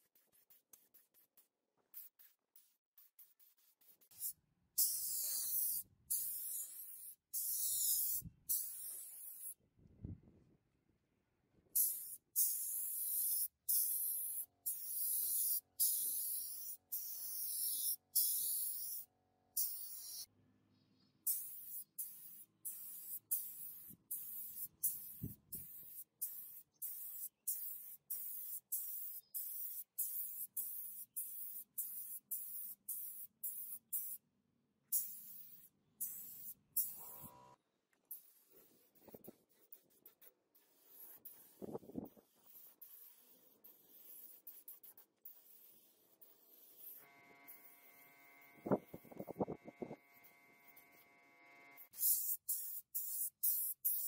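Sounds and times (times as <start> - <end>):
paint spray gun hissing: 3.3 - 9.6, 11.8 - 20.3, 21.3 - 34.2, 34.9 - 37.3, 38.2 - 47.0, 51.9 - 54.0.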